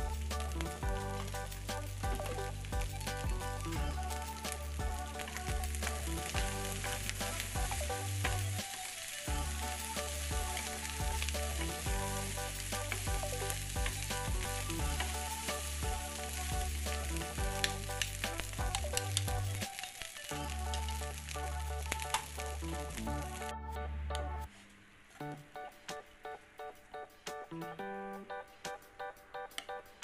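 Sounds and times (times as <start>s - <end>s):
rice sizzling in frying pan: 0.0s - 23.4s
background music with bass: 0.0s - 24.5s, 25.2s - 30.0s.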